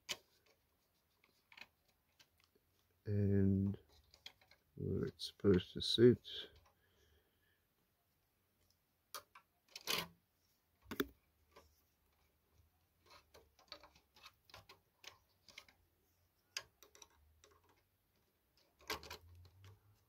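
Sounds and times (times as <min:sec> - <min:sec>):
plastic clicks and knocks: 0:10.8 - 0:11.2.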